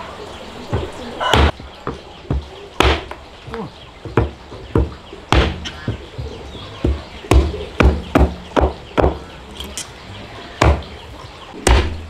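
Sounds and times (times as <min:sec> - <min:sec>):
blade chopping: 0:01.3 - 0:03.2.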